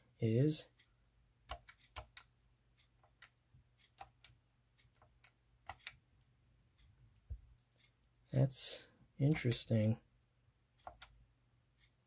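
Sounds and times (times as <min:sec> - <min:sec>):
keypad keys clicking: 0:01.5 - 0:02.3, 0:03.0 - 0:06.0, 0:10.8 - 0:11.2.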